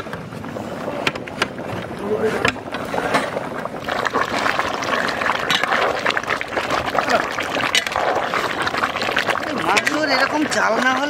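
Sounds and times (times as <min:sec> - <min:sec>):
curry bubbling in a pot: 0:00.0 - 0:11.0
wood fire pops and crackles: 0:01.0 - 0:11.0
metal ladle stirring thick gravy: 0:03.8 - 0:11.0.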